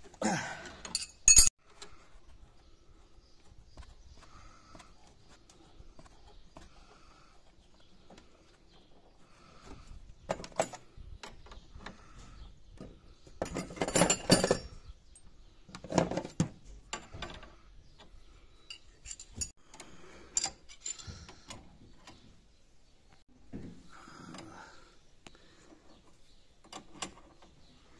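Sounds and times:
spanner clinking on metal fittings: 0.8s - 1.5s, 13.4s - 16.1s, 18.6s - 22.2s.

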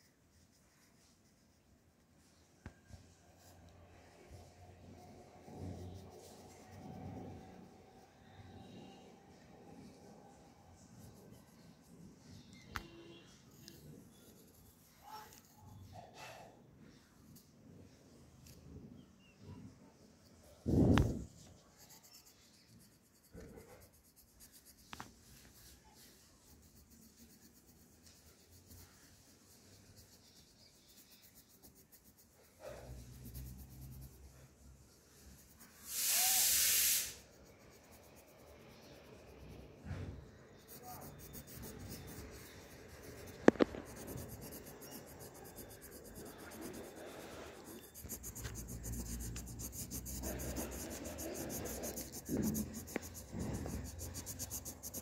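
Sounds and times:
pencil scratching on paper: 0.0s - 19.0s, 20.4s - 55.0s
loud hiss: 35.8s - 37.2s.

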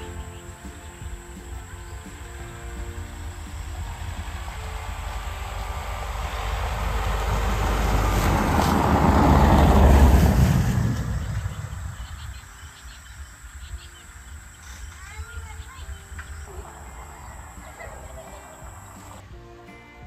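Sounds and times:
vehicle passing by: 0.0s - 12.7s, 16.1s - 19.2s.

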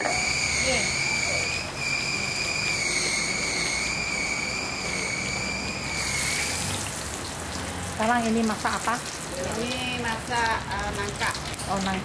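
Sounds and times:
high wavering whistle: 0.0s - 6.8s
gas burner hissing: 0.0s - 12.0s.

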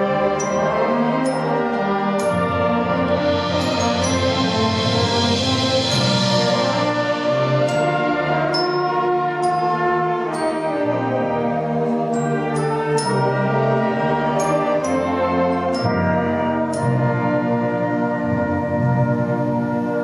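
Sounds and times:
brass band playing: 0.0s - 20.0s
high ringing percussion strikes: 2.2s - 9.8s.

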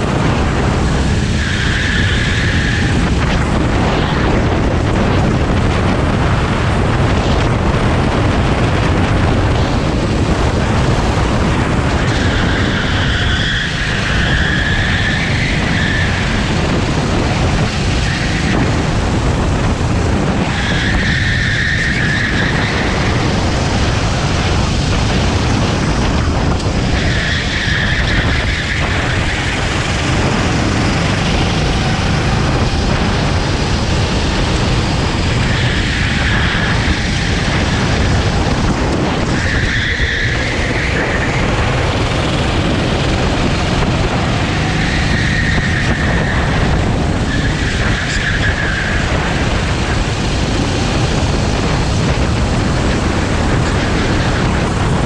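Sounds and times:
high steady whine: 0.0s - 55.0s
kart engine running hard: 0.0s - 55.0s
road noise: 0.0s - 55.0s.

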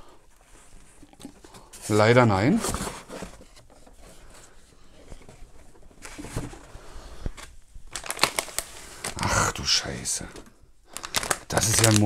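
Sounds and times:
cardboard box handling: 2.5s - 4.4s
foil bag crinkling: 7.9s - 9.4s, 10.9s - 12.0s.

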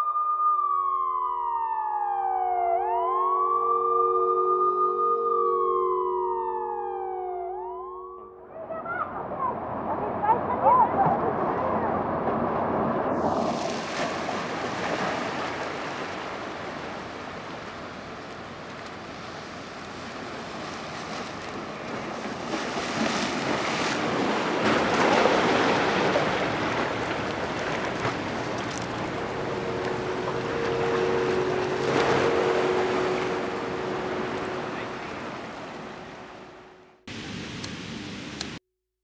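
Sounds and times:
two-note hum: 0.0s - 8.7s, 26.9s - 37.0s
wind: 0.0s - 38.6s
waves washing in: 9.0s - 38.6s.

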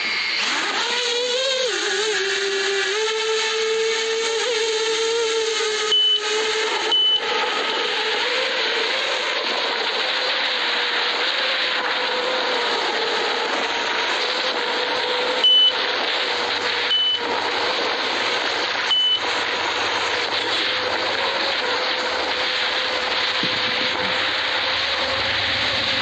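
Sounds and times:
drone motors and propellers: 0.0s - 26.0s
short high beeps: 5.9s - 6.3s, 6.9s - 7.2s, 15.4s - 15.8s, 16.9s - 17.3s, 18.9s - 19.3s.

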